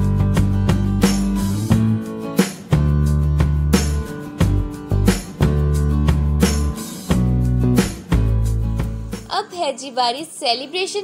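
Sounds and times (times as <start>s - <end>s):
plucked strummed guitar: 0.0s - 9.2s.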